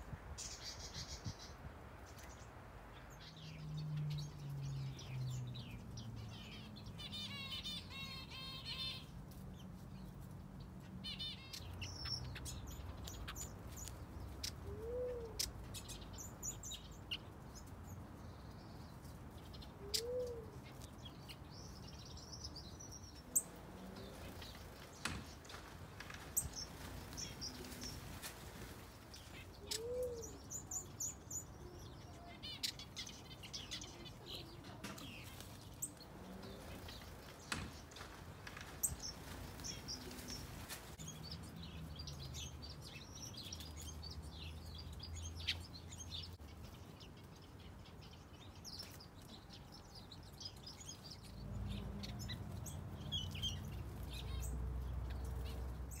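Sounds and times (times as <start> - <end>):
small birds chirping and twittering: 0.0 - 56.0.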